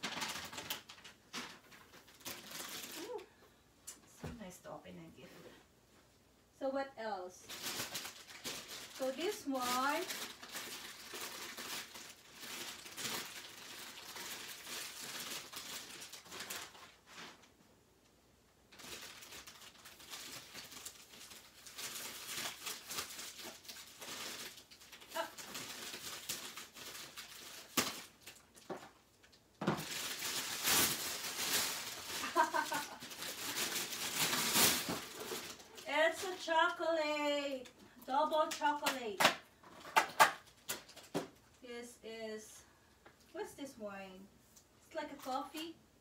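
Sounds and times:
cellophane crinkling: 0.0 - 3.3, 7.4 - 17.6, 18.7 - 39.0, 39.6 - 41.6.

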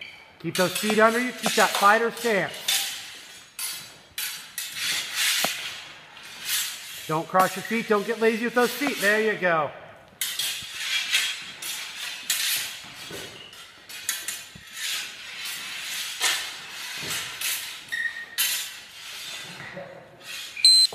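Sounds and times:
practice swords knocking: 0.6 - 3.0.

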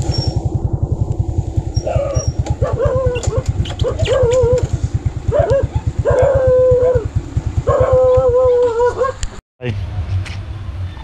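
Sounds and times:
small engine chugging: 0.0 - 9.1
dog whining: 1.8 - 4.7.

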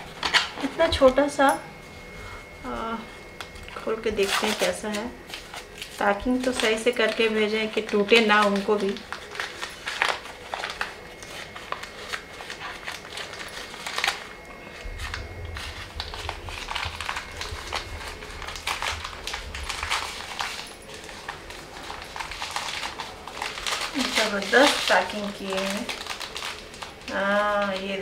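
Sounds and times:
newspaper crinkling: 2.8 - 28.0
low rumble: 14.8 - 20.6.

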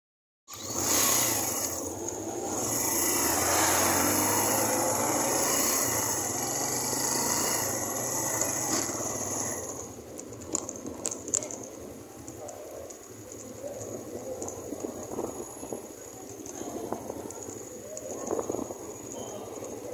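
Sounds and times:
motorcycle engine running: 0.5 - 12.6.

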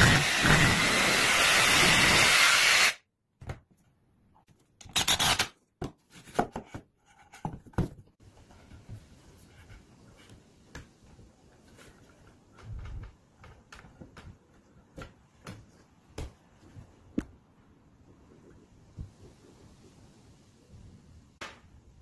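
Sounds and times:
power tool cutting wood: 0.0 - 3.0.

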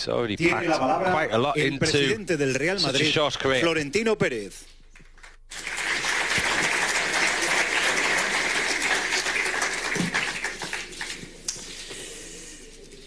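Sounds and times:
audience applauding: 5.5 - 12.6.

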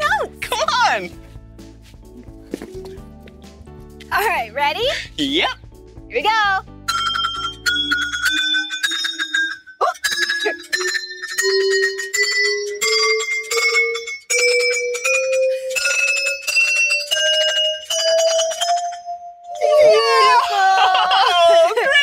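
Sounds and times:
chime poles rising notes: 6.8 - 20.4.

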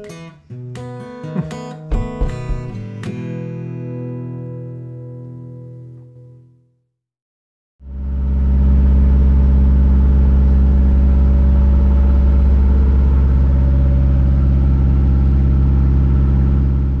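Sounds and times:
boat engine droning: 7.8 - 17.0.

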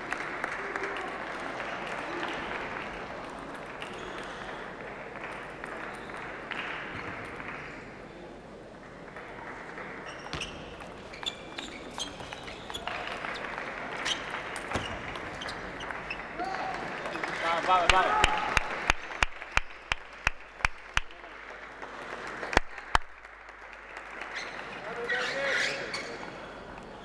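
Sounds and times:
crowd noise in a hall: 0.0 - 27.0.

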